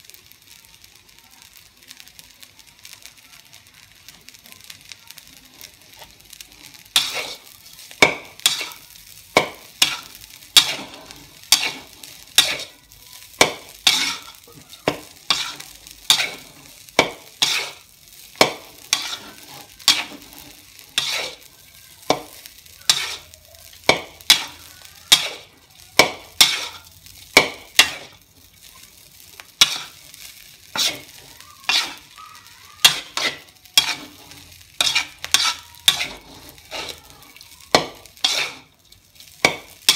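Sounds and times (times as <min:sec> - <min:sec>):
rice sizzling: 0:00.0 - 0:39.9
metal spatula striking a wok: 0:06.9 - 0:12.7, 0:13.3 - 0:20.4, 0:21.0 - 0:28.2, 0:29.5 - 0:32.2, 0:32.8 - 0:37.1, 0:37.7 - 0:38.7, 0:39.4 - 0:39.9.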